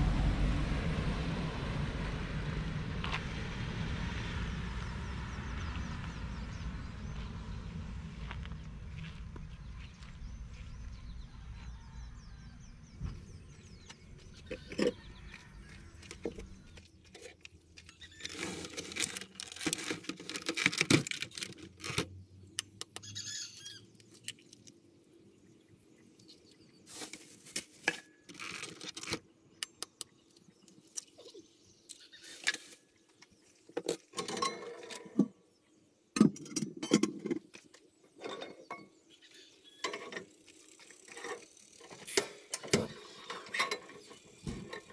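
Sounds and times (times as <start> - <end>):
low rumble: 0.0 - 14.4.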